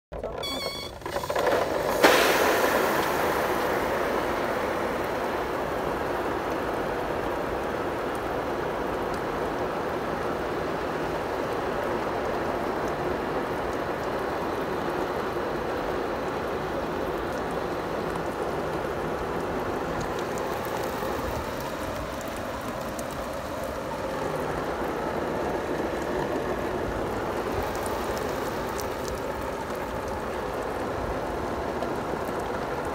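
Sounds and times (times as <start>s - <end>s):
hose water spraying on plastic: 0.2s - 32.9s.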